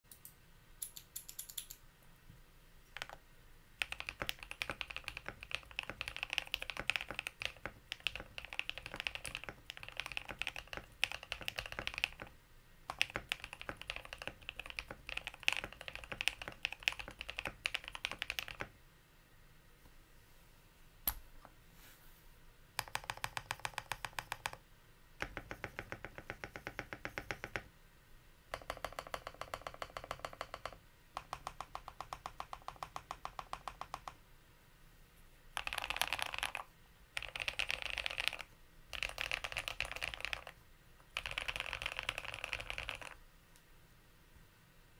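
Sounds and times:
mechanical keyboard typing: 0.1s - 1.8s, 2.9s - 3.2s, 3.8s - 18.7s, 22.8s - 24.6s, 25.2s - 27.7s, 28.5s - 34.2s, 35.6s - 43.2s
rapid repeated key presses: 0.1s - 1.8s, 2.9s - 3.2s, 3.8s - 18.8s, 22.8s - 24.6s, 25.2s - 27.7s, 28.5s - 34.2s, 35.6s - 43.2s.

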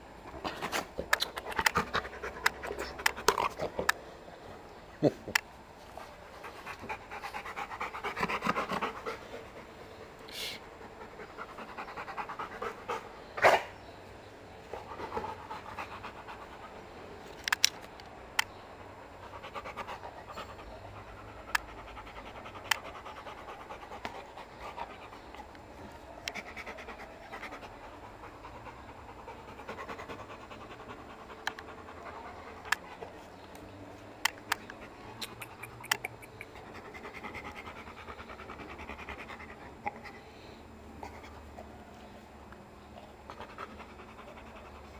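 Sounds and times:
dog panting: 0.5s - 5.2s, 5.8s - 13.4s, 14.5s - 17.3s, 18.7s - 40.3s, 42.9s - 44.9s
sharp clicks: 1.1s - 4.0s, 33.5s - 36.6s.

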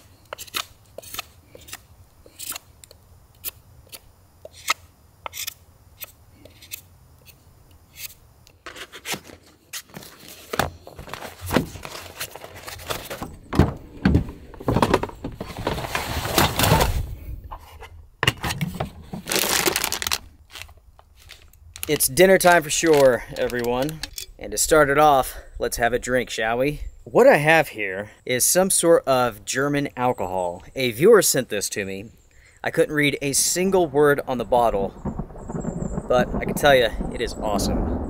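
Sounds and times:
knife scraping wood: 0.0s - 2.7s, 3.4s - 10.0s.

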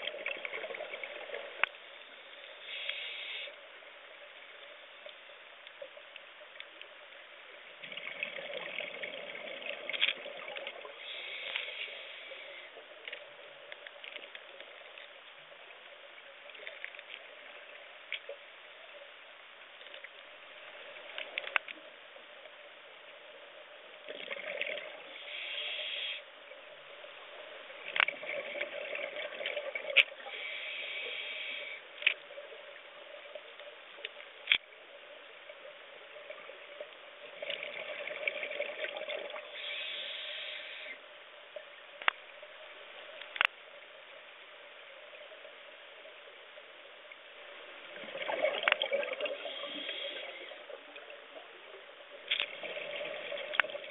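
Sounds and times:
bubbling and hiss: 0.0s - 53.9s
scuba breathing: 2.0s - 3.6s, 10.8s - 12.8s, 24.8s - 26.3s, 30.2s - 32.1s, 39.4s - 41.0s, 49.2s - 50.8s.

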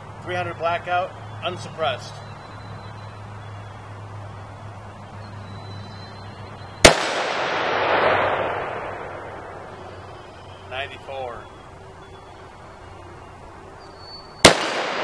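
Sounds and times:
rifle shot with rolling echo: 6.8s - 10.6s, 14.4s - 15.0s.

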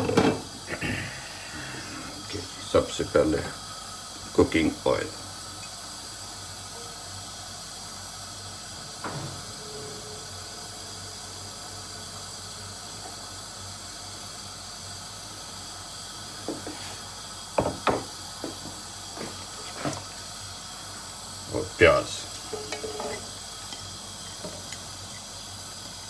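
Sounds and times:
gas burner hissing: 0.0s - 26.0s
kitchenware knocks and clicks: 17.6s - 18.8s.

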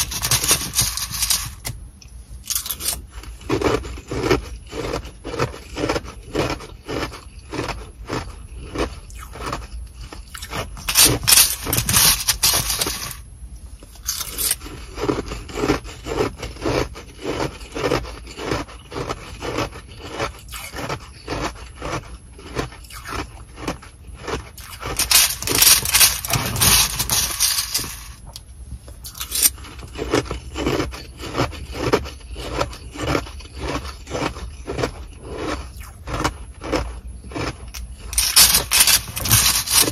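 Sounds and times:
plastic spoon scraping ice: 0.0s - 1.8s, 2.4s - 13.2s, 13.9s - 39.9s
chewing ice crunches: 2.4s - 13.2s, 14.0s - 28.4s, 29.0s - 39.9s
plastic bag crinkling: 10.5s - 13.2s, 24.6s - 28.2s, 38.1s - 39.9s.

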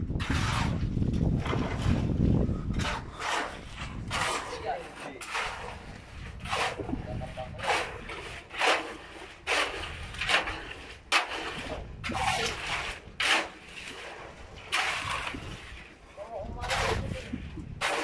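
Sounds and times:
shovels scraping wet concrete: 0.2s - 18.0s.

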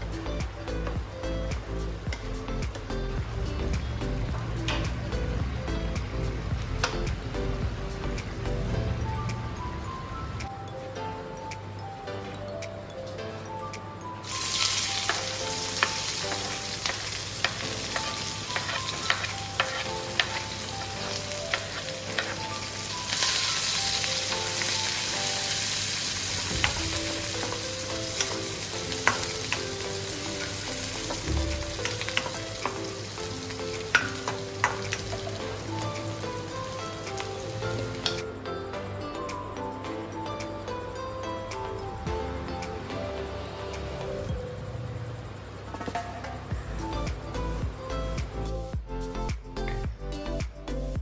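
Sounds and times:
onions sizzling in hot oil: 14.2s - 38.2s
spoon scraping pan: 15.8s - 22.4s.

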